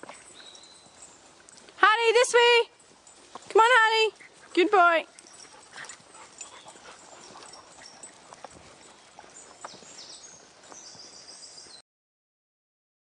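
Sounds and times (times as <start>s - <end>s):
footsteps on tarmac: 0.0s - 1.8s, 5.3s - 11.8s.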